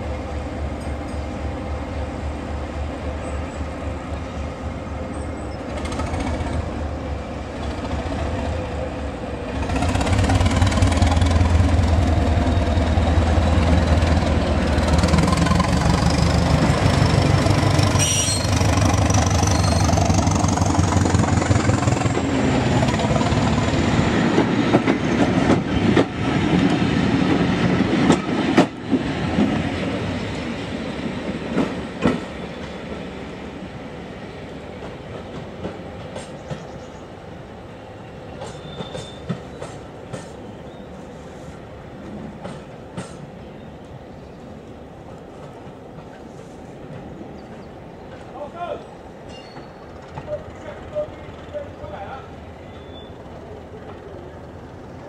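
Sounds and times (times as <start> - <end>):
diesel train engine running: 0.0 - 43.4, 44.8 - 55.0
train passing with rising whine: 0.0 - 55.0
train wheels clicking over rail joints: 5.5 - 6.8, 9.5 - 33.1, 34.6 - 37.0, 38.3 - 40.5, 42.0 - 43.4, 45.0 - 48.4, 49.2 - 51.6.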